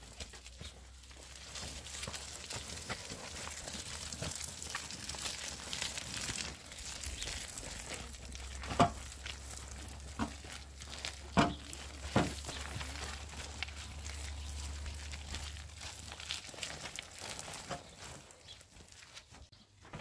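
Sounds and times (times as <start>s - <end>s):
wheelbarrow on muddy dirt path: 0.0s - 20.0s
footsteps scuffing: 8.4s - 20.0s.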